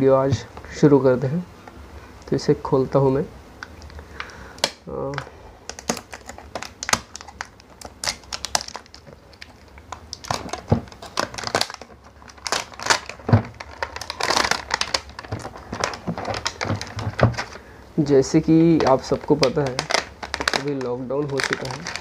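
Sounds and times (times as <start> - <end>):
plastic shrink wrap crinkling: 3.9 - 17.7, 18.4 - 22.0.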